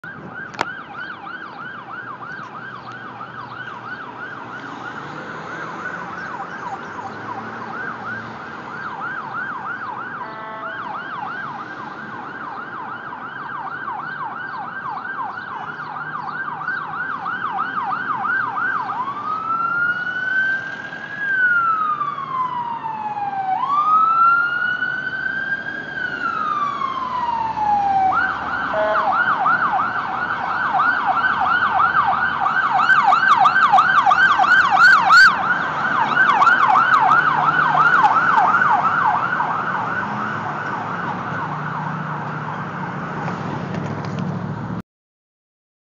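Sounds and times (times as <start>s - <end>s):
ambulance siren: 0.0s - 44.2s
horn blast: 10.2s - 10.9s, 28.7s - 29.2s.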